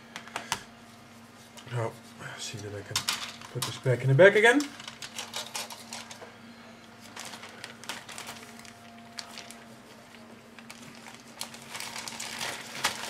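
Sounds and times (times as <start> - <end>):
steady low hum: 0.0 - 13.0
plastic bag rustling: 7.0 - 13.0.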